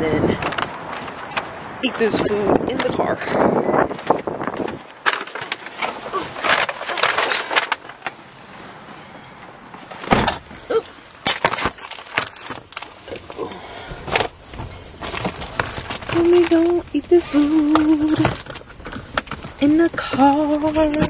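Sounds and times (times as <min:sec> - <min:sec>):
bag and cup handling rustles: 0:14.1 - 0:21.0.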